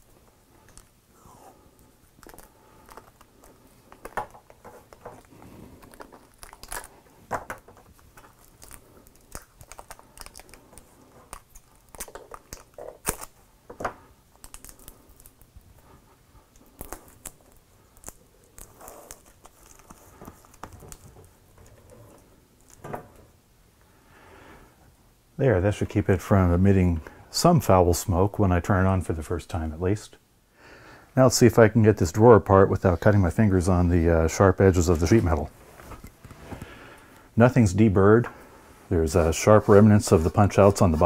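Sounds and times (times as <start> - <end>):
foil crinkling: 2.2 - 13.4, 16.6 - 22.8.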